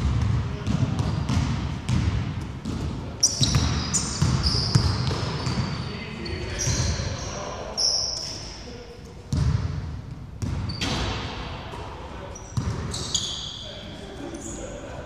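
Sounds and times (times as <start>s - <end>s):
basketball bouncing on wooden court: 0.0s - 5.8s, 9.3s - 9.8s, 10.4s - 11.2s, 12.6s - 12.9s
sneakers squeaking on floor: 0.0s - 8.6s, 10.4s - 11.3s, 12.3s - 14.6s.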